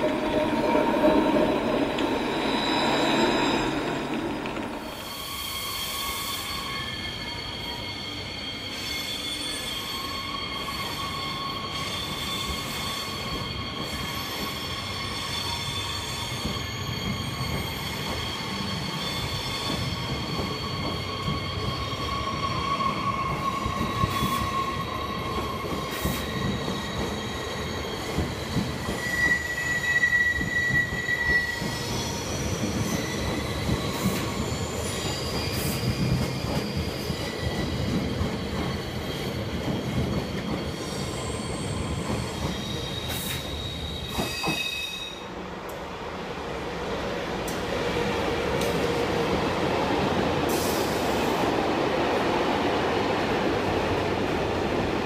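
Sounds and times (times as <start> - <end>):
low train rumble: 0.0 - 5.9
train wheels squealing: 0.0 - 55.0.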